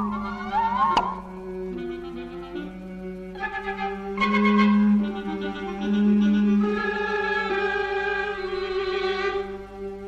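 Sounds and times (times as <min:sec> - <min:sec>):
orchestral film music: 0:00.0 - 0:10.0.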